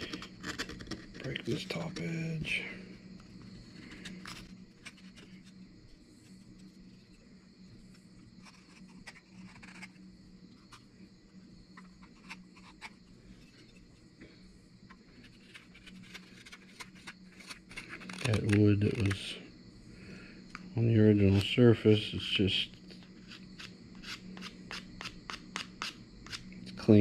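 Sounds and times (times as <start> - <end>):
knife shaving wood: 0.0 - 2.1, 7.9 - 10.0, 15.0 - 19.2
steady low hum: 0.0 - 27.0.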